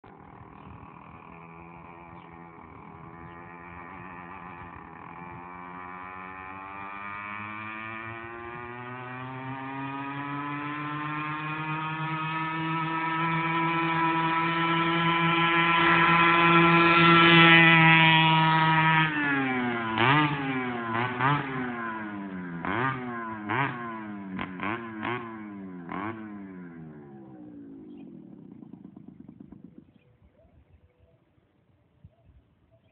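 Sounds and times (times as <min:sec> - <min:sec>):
small two-stroke engine revving: 0:00.0 - 0:30.0.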